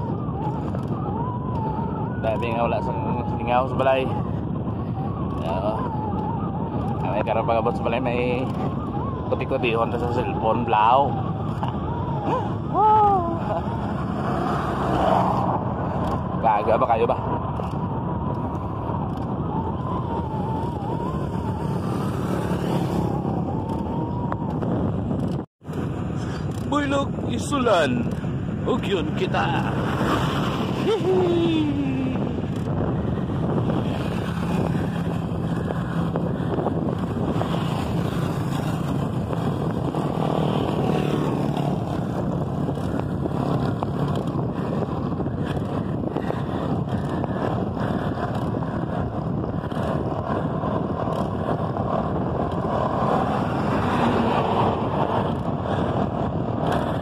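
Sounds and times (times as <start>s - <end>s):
road noise: 0.0s - 57.0s
wind on microphone: 0.0s - 57.0s.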